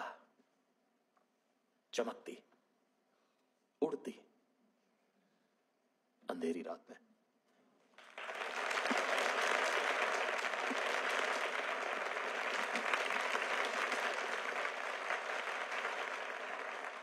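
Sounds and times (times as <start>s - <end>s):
audience applauding: 8.0s - 17.0s.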